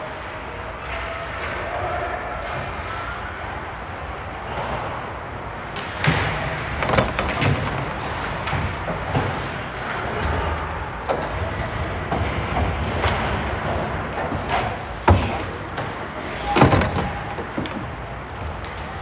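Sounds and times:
steady rink noise: 0:00.0 - 0:19.0
hockey sticks and puck clacking: 0:05.7 - 0:19.0.

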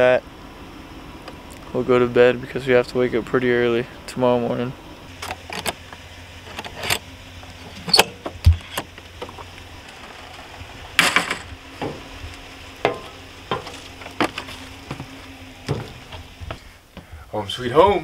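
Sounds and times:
sharp clatter: 0:07.7 - 0:12.0
dull low thump: 0:11.8 - 0:17.2.

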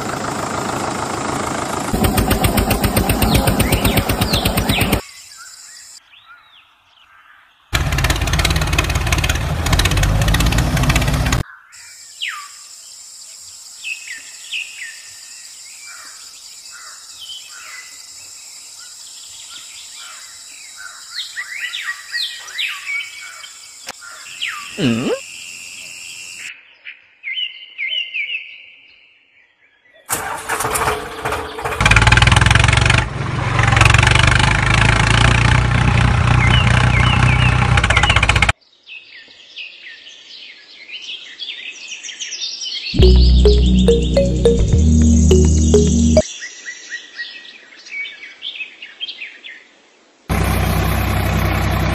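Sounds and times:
tractor engine running: 0:00.0 - 0:05.0, 0:07.8 - 0:11.4, 0:30.1 - 0:38.5, 0:50.3 - 0:51.9
birds chirping: 0:02.0 - 0:05.0, 0:24.3 - 0:25.2.

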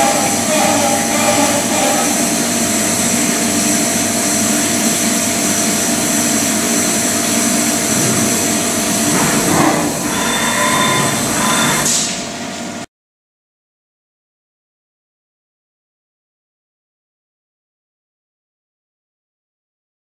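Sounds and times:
coolant spray hissing: 0:00.0 - 0:12.3
milling machine cutting metal: 0:00.0 - 0:12.3.

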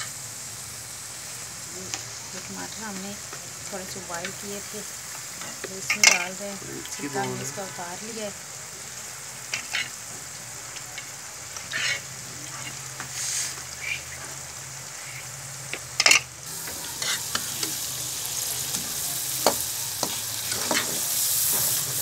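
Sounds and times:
food sizzling in a pan: 0:00.0 - 0:22.0
metal spoon scraping pan: 0:09.5 - 0:09.9, 0:11.6 - 0:14.2, 0:16.0 - 0:17.8.

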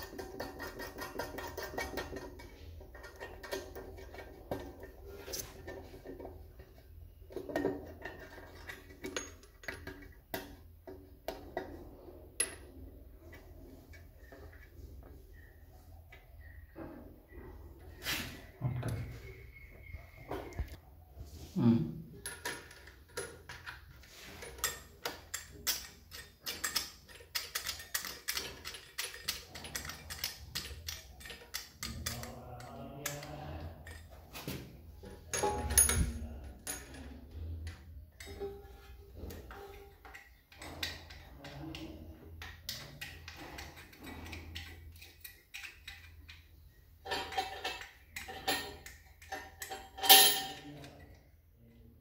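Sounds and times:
metal hose nut clicking: 0:00.0 - 0:11.8, 0:22.3 - 0:34.3, 0:35.0 - 0:51.2.

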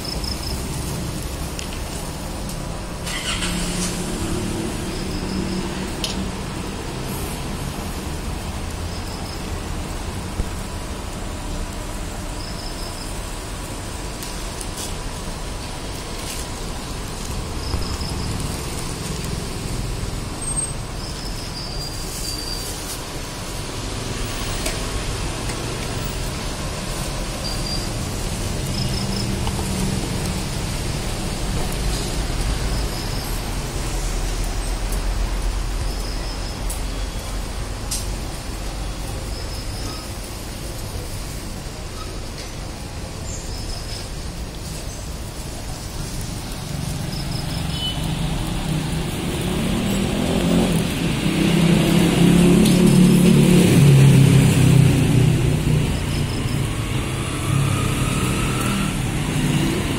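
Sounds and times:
roadside traffic rushing: 0:00.0 - 0:59.9
skewers sizzling on grill: 0:00.0 - 0:59.9
vehicle engine rumble: 0:00.0 - 0:59.9.

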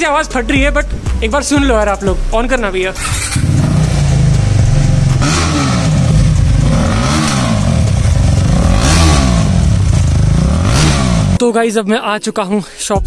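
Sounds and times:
motorcycle engine idling and revving: 0:01.7 - 0:11.4.

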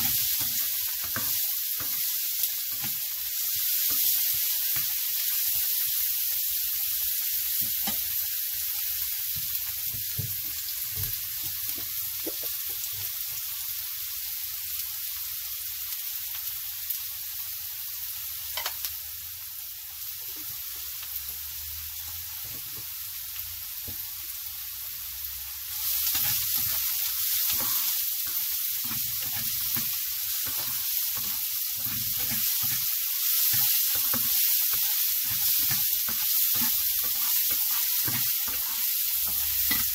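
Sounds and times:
onions sizzling in hot oil: 0:00.0 - 0:39.9.

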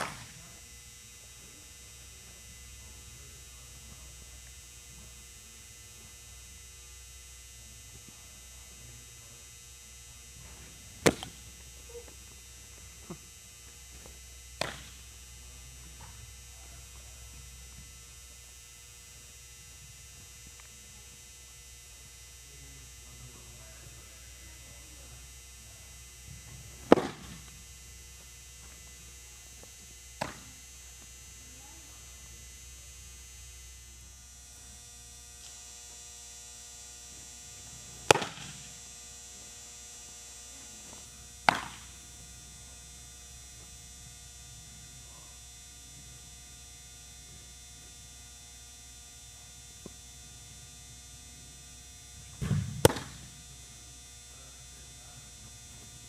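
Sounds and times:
baseballs smacking into glove: 0:00.0 - 0:00.4, 0:11.0 - 0:11.4, 0:14.6 - 0:15.0, 0:26.8 - 0:27.6, 0:30.2 - 0:30.6, 0:38.1 - 0:38.7, 0:41.4 - 0:41.9, 0:52.4 - 0:53.3
steady low hum: 0:00.0 - 0:56.0.

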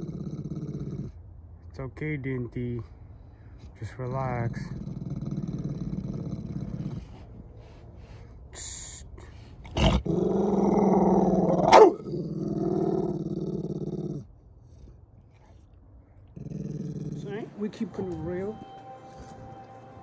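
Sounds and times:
dog growling low: 0:00.0 - 0:01.2, 0:03.8 - 0:17.7.

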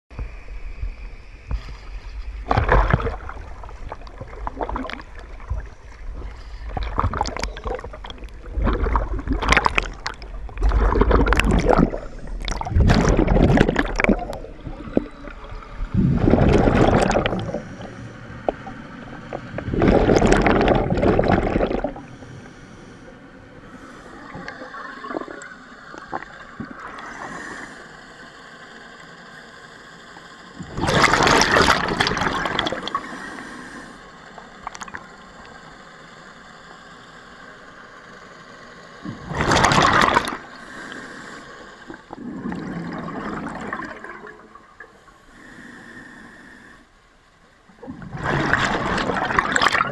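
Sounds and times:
bubbles gurgling underwater: 0:02.4 - 0:22.1, 0:24.2 - 0:27.0, 0:30.6 - 0:33.0, 0:39.0 - 0:40.5, 0:42.1 - 0:44.7, 0:47.8 - 0:49.9
steady hiss: 0:21.9 - 0:30.6, 0:32.8 - 0:39.1, 0:40.4 - 0:42.2, 0:44.6 - 0:47.7.

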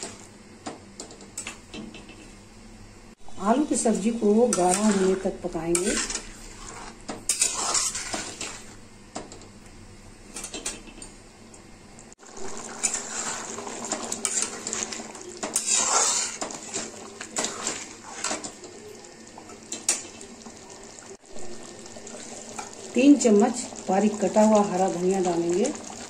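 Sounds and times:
metal spatula scraping pan: 0:03.3 - 0:08.8, 0:12.6 - 0:18.5
curry simmering: 0:04.4 - 0:08.9, 0:12.1 - 0:26.0.

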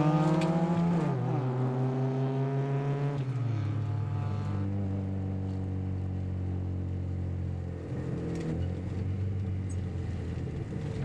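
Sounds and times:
car engine pulling under load: 0:00.0 - 0:01.6.

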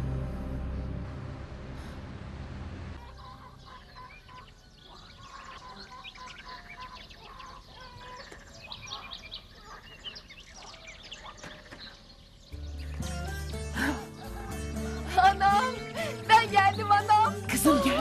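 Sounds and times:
minibus engine rumble: 0:00.0 - 0:03.8
chickens clucking: 0:03.0 - 0:12.2
small birds chirping: 0:03.0 - 0:18.0.

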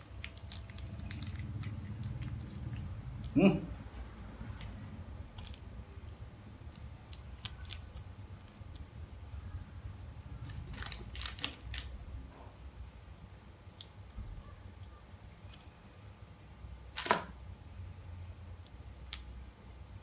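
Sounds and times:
plastic sachets crinkling: 0:00.0 - 0:03.4, 0:07.1 - 0:08.8, 0:10.4 - 0:12.0.

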